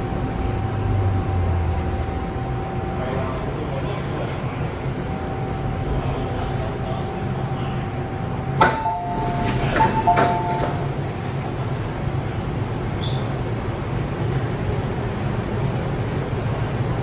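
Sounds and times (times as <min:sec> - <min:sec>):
train low hum: 0:00.0 - 0:17.0
two-note door chime: 0:08.6 - 0:11.0.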